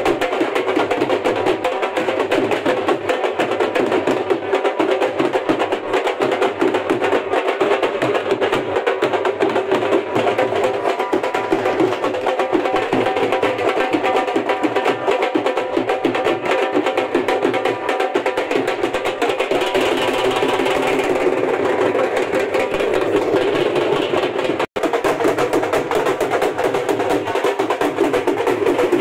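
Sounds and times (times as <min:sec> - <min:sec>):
drums beaten in fast rhythm: 0:00.0 - 0:29.0.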